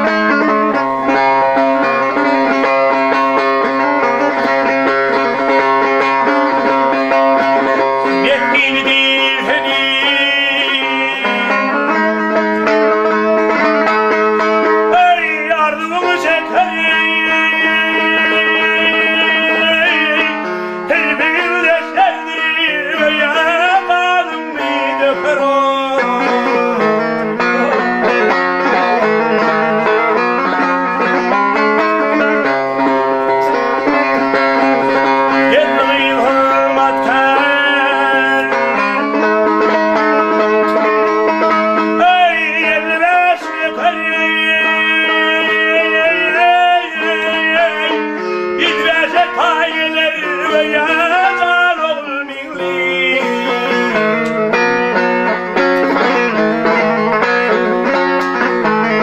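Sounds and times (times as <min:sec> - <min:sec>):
man singing folk song: 0:00.0 - 0:59.0
strummed lute: 0:00.0 - 0:59.0.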